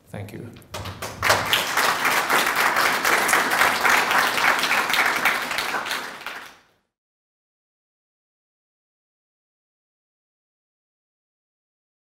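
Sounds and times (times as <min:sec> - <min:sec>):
audience applauding: 0:00.7 - 0:06.7.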